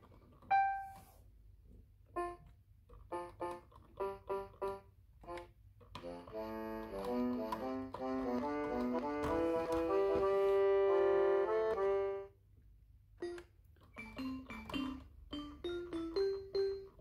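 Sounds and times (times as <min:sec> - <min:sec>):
toy keyboard synthesized melody: 0:03.1 - 0:12.3, 0:13.2 - 0:17.0.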